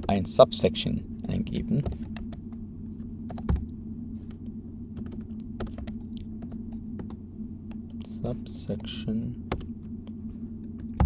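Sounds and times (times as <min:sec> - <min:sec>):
steady low hum: 0:00.0 - 0:11.0
keyboard typing: 0:01.8 - 0:02.6, 0:03.3 - 0:04.4, 0:05.0 - 0:07.9, 0:08.8 - 0:09.7.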